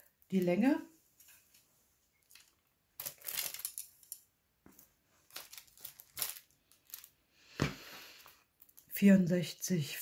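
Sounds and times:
plastic film rustling: 2.2 - 7.2.

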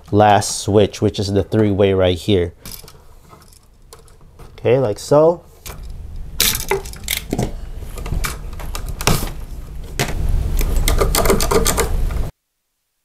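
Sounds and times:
wire and tool clicks and scraping: 5.6 - 9.4.

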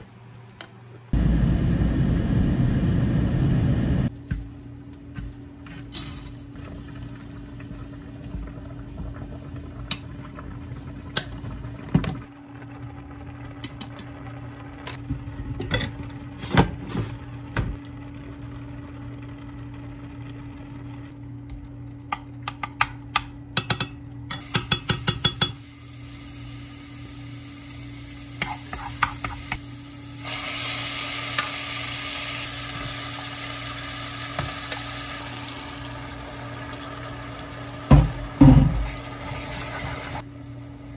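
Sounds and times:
steady low hum: 0.0 - 16.4
pots and utensils clacking: 23.6 - 25.6
spaghetti sizzling in hot oil: 24.4 - 40.2.

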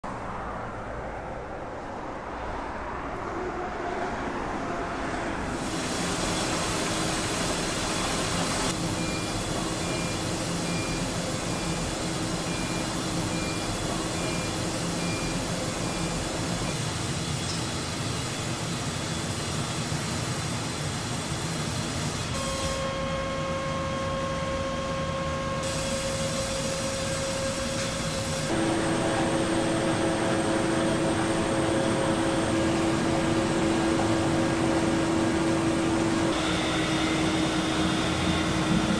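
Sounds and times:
factory machinery humming: 5.0 - 38.9
machine whining tones: 6.1 - 19.4, 22.2 - 38.9.

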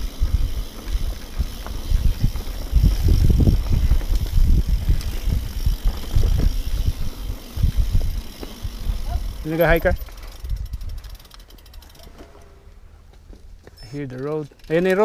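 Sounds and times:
wind on microphone: 0.0 - 11.1
bike knocks and rattles: 0.0 - 12.5
bike tyres rumbling: 0.0 - 15.0.

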